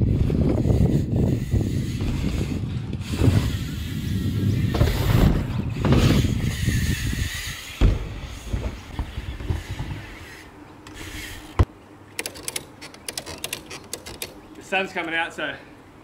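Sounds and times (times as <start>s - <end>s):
bike tyres rumbling on wooden ramps: 0.0s - 11.7s
bike landing thump: 1.9s - 10.4s.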